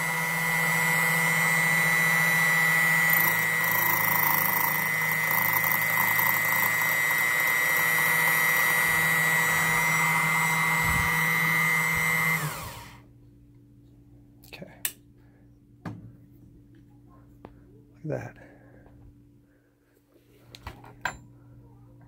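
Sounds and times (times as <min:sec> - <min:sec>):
key cutting machine whining: 0:00.0 - 0:13.0.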